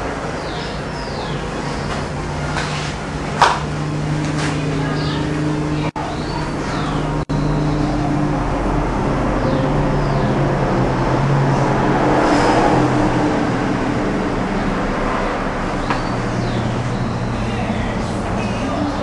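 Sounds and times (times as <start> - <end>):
engine hum: 0.0 - 19.0
loud rushing noise: 0.0 - 19.0.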